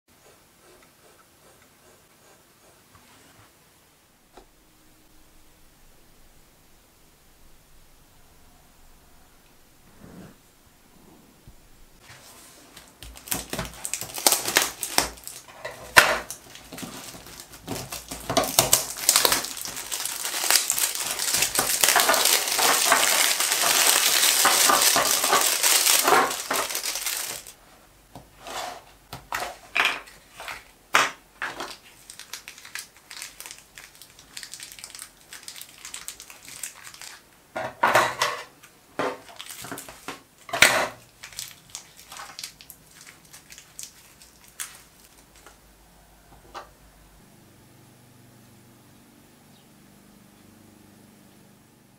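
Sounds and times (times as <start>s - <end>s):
plastic bag crinkling: 12.7s - 27.6s, 31.5s - 37.3s, 39.2s - 45.6s.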